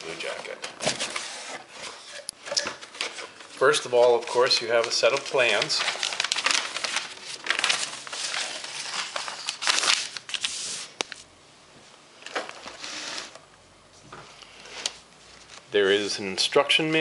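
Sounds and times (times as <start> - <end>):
paper rustling and crinkling: 0.2 - 11.2.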